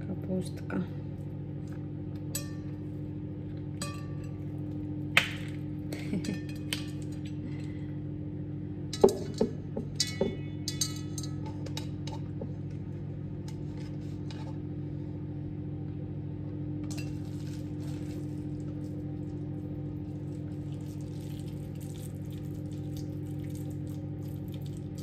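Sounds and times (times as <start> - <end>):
dishes clinking: 3.8 - 4.4, 9.0 - 12.4.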